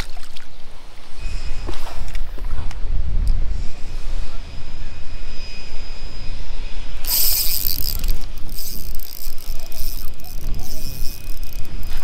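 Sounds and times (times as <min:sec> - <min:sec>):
wind rumble on microphone: 0:00.0 - 0:12.0
fishing reel ratcheting: 0:07.0 - 0:12.0.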